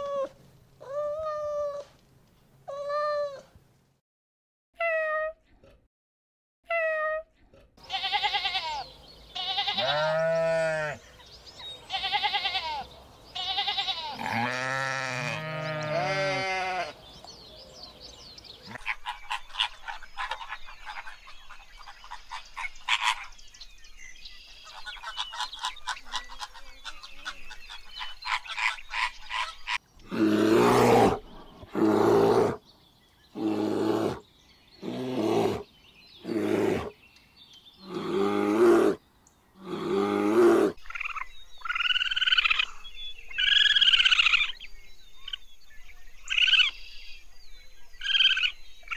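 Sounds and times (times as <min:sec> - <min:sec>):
ram bleating: 0:07.8 - 0:08.8, 0:09.4 - 0:11.0, 0:11.9 - 0:12.8, 0:13.4 - 0:17.0.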